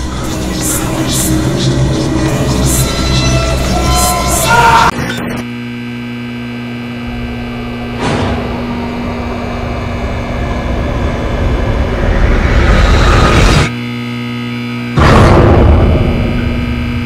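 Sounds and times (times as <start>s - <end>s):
loud sound cutting off: 5.7s - 14.1s
fluorescent lights humming: 5.8s - 11.5s
low rumble: 6.8s - 13.7s
sudden hit: 7.0s - 13.7s, 15.0s - 17.0s.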